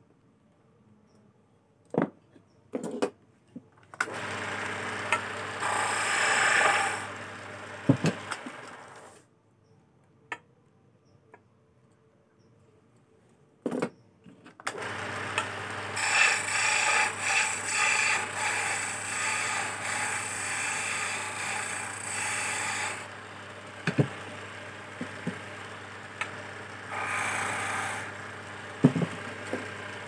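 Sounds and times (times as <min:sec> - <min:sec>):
lathe motor humming: 0:04.1 - 0:09.1, 0:14.8 - 0:30.0
chisel scraping wood on lathe: 0:04.1 - 0:09.2, 0:14.8 - 0:30.0.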